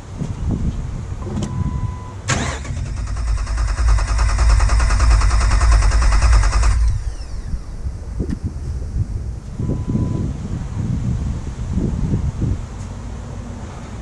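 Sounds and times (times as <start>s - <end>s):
short steady beep: 1.5s - 2.2s, 9.6s - 10.3s
engine cranking on starter: 2.3s - 8.0s
starter winding down whine: 2.3s - 8.9s.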